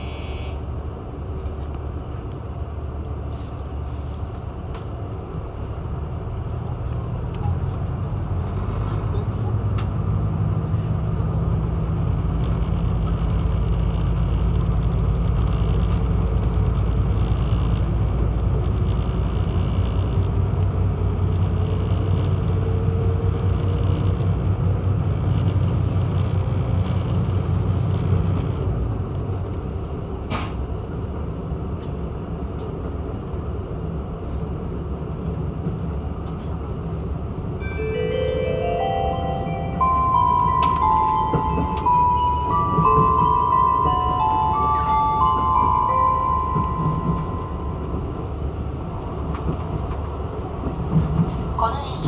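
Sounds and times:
diesel railcar engines droning: 0:00.0 - 0:52.0.

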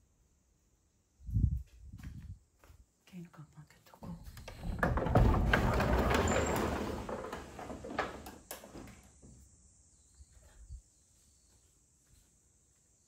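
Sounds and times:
wooden sliding door rolling open: 0:04.3 - 0:09.4.

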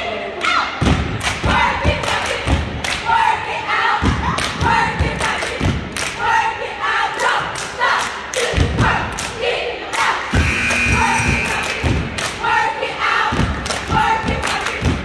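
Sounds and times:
group chanting in unison: 0:01.4 - 0:15.0
hands clapping: 0:11.4 - 0:12.4, 0:13.6 - 0:15.0.

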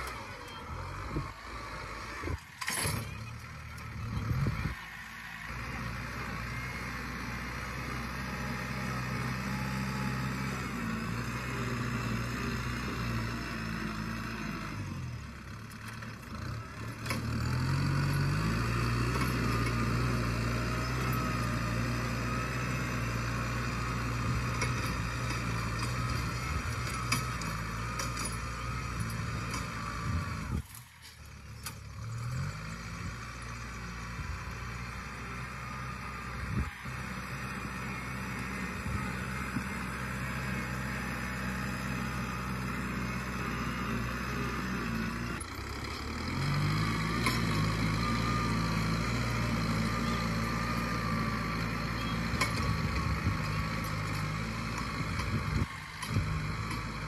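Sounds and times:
diesel tractor engine under load: 0:00.0 - 0:57.0.

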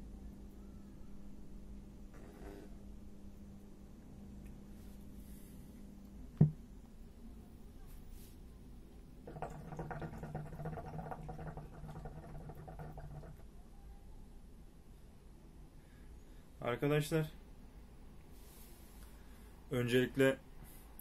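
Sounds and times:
hookah water bubbling: 0:09.2 - 0:13.6.

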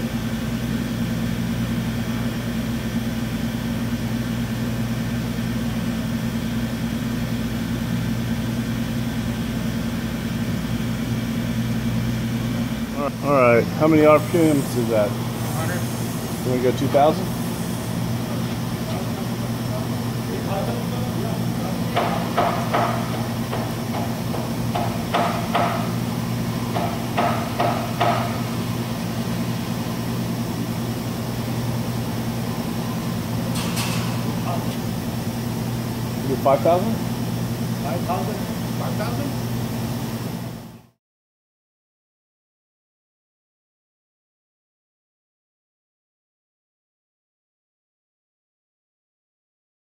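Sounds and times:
milling machine hum: 0:00.0 - 0:40.9
sharp knocks: 0:21.9 - 0:26.0, 0:26.7 - 0:28.4.

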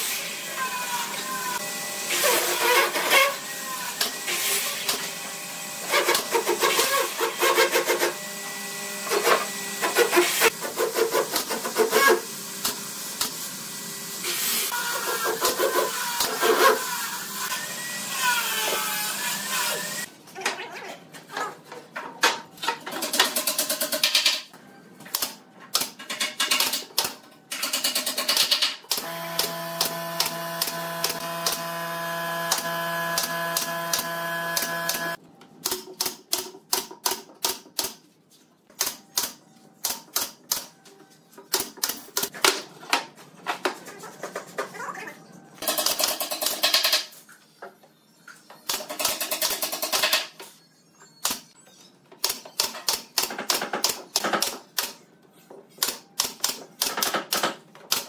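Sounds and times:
drill whining: 0:29.0 - 0:35.2.

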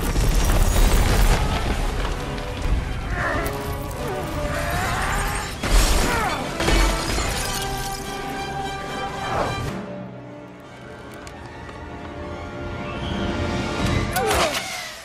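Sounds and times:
ice shattering and cracking: 0:00.0 - 0:02.8, 0:03.4 - 0:08.3
orchestral music: 0:01.4 - 0:15.0.

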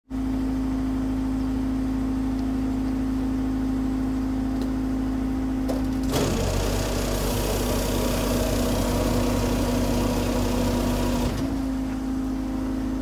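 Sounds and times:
rough mechanical noise: 0:05.7 - 0:13.0
screed mixer humming: 0:06.1 - 0:11.8.

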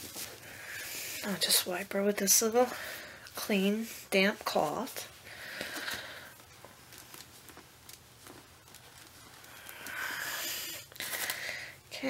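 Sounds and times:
cloth rubbing and rustling: 0:00.0 - 0:02.7, 0:03.4 - 0:09.8.

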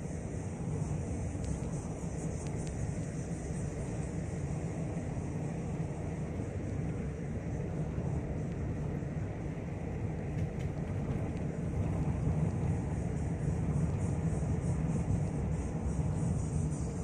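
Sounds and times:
car engine rumble: 0:00.0 - 0:17.0
tyres on paved road: 0:00.1 - 0:17.0
faint ticks: 0:01.1 - 0:04.7, 0:08.4 - 0:08.7, 0:10.3 - 0:17.0.

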